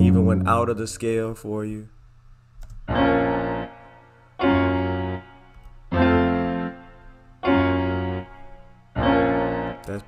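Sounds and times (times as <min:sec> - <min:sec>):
piano chords: 0:00.0 - 0:01.1, 0:02.8 - 0:10.0.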